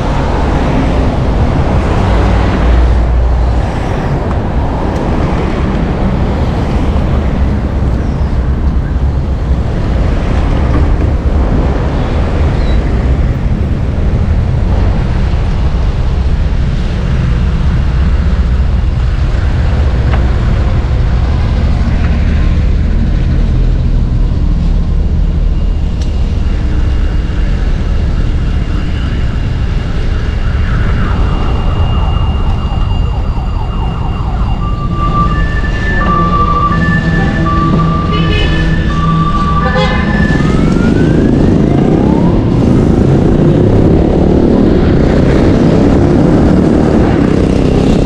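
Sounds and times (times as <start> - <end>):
city road traffic: 0.0 - 48.0
faint steady high tones: 25.4 - 41.0.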